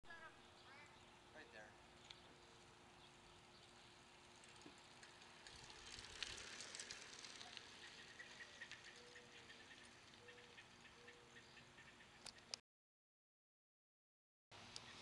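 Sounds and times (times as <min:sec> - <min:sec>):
bicycle drivetrain clicking: 0:02.0 - 0:11.1
bicycle tyre hiss: 0:04.5 - 0:09.8.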